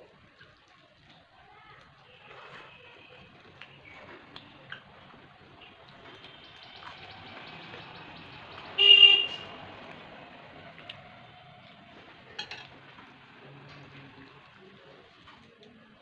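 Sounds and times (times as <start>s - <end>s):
vehicle horn toot: 8.8s - 9.6s.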